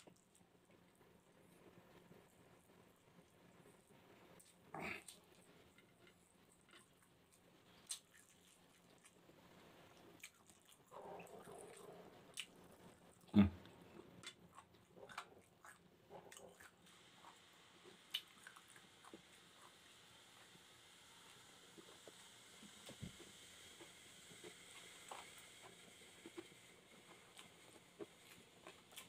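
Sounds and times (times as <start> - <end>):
person chewing with wet clicks: 4.4 - 9.3, 10.1 - 19.8.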